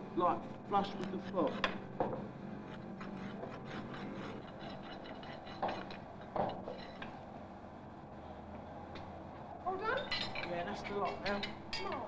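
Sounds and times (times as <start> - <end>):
rasp filing hoof: 3.1 - 5.0.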